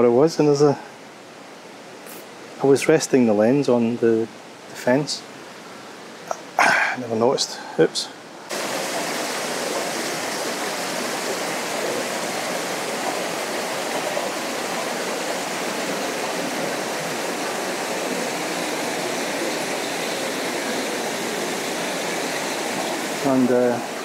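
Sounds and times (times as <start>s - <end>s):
small waterfall rushing: 8.4s - 24.0s.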